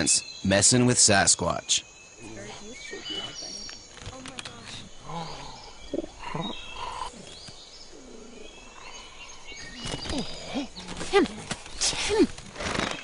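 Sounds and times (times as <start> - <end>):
birds chirping and whistling: 0.0 - 13.0.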